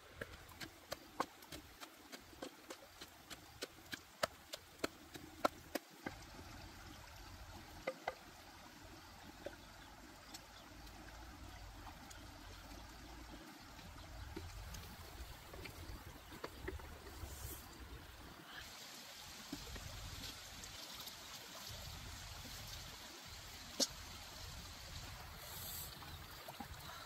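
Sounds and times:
stream flowing over rocks: 0.0s - 27.0s.

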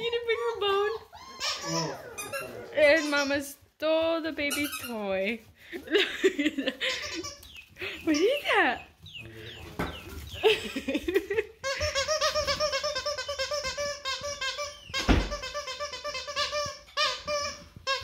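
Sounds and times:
squeaky toy squeaking: 0.0s - 3.6s, 4.4s - 5.4s, 6.8s - 8.8s, 11.6s - 18.0s
thump: 15.0s - 15.4s.

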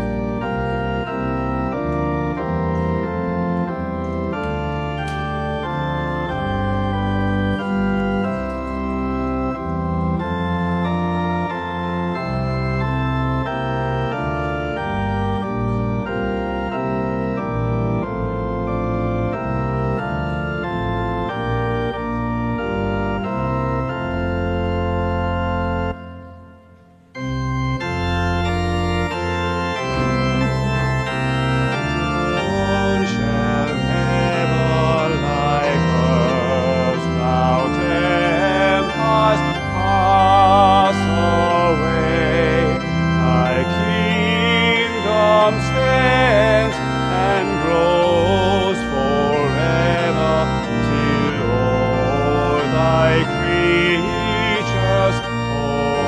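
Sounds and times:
church organ playing a hymn: 0.0s - 56.0s
congregation singing: 29.8s - 56.0s.

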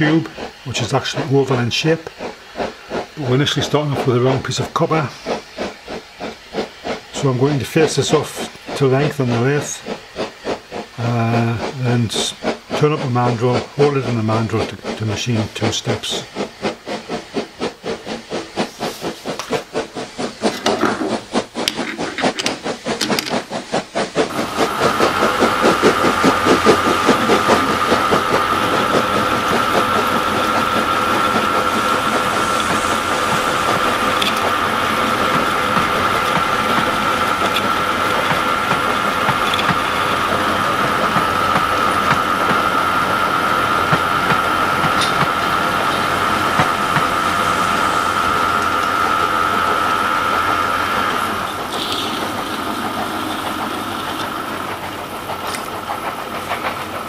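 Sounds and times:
rhythmic pulsing sound: 0.0s - 57.0s
metal lathe whining: 24.3s - 56.9s.

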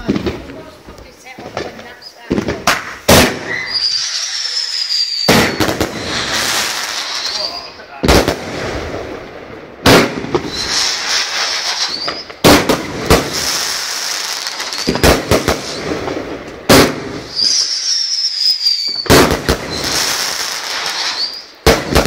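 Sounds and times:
fireworks bangs: 0.0s - 22.0s
fireworks crackle: 0.0s - 22.0s
high firework whistle: 3.3s - 7.9s, 10.4s - 12.4s, 13.5s - 15.9s, 17.2s - 21.6s.

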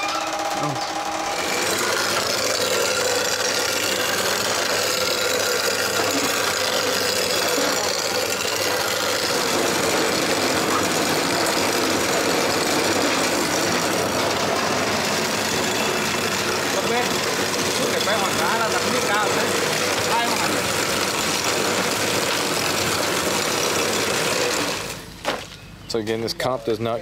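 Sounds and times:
boring rig drill drone: 0.0s - 25.2s.

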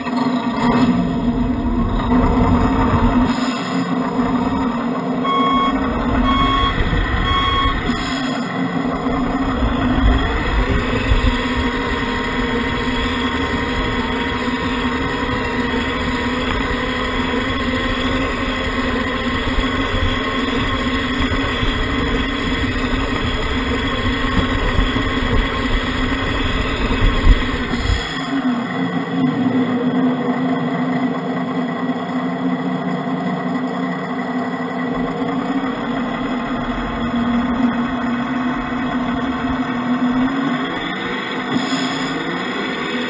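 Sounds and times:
simulated diesel engine drone: 0.0s - 43.0s
short beeps: 5.2s - 8.4s.

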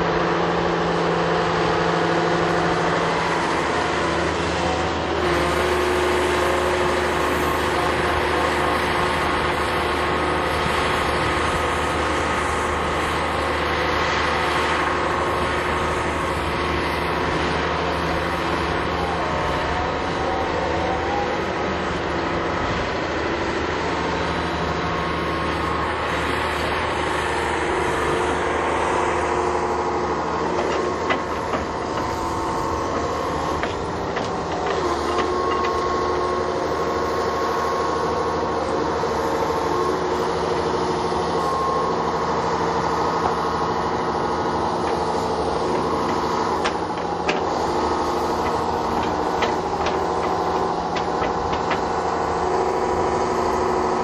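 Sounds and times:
diesel engine running: 0.0s - 54.0s
steel track clatter: 44.8s - 52.6s.

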